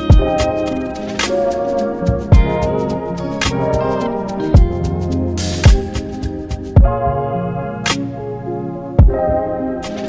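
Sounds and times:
instrumental background music: 0:00.0 - 0:10.0
deep kick drum: 0:00.1 - 0:00.4, 0:02.1 - 0:02.6, 0:04.6 - 0:04.9, 0:05.6 - 0:05.9, 0:06.8 - 0:07.0, 0:09.0 - 0:09.2.

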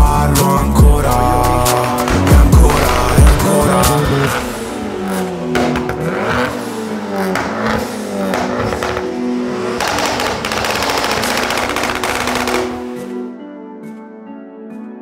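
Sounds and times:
car engine revving hard: 0:01.7 - 0:12.7
exhaust pops and bangs: 0:01.7 - 0:13.0.

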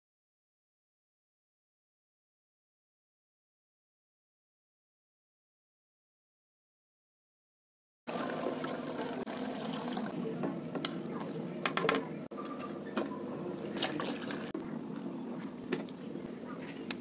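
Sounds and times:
liquid sloshing in a pot: 0:13.6 - 0:14.6.

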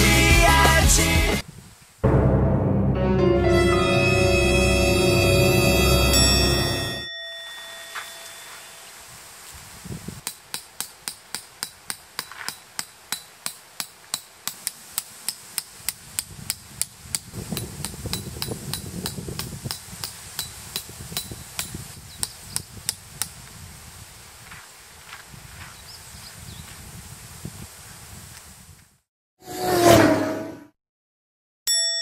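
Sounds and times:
tent pegs being hammered: 0:10.2 - 0:23.4.

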